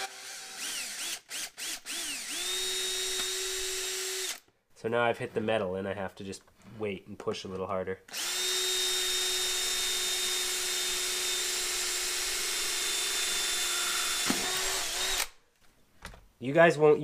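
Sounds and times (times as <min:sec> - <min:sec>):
cordless drill drilling metal: 0:00.0 - 0:04.4, 0:08.1 - 0:15.4.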